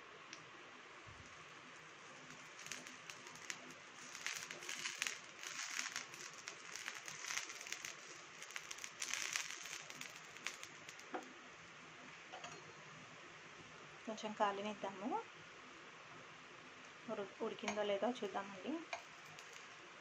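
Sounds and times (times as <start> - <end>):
oil sizzling and popping in pan: 1.2 - 11.4, 18.8 - 20.0.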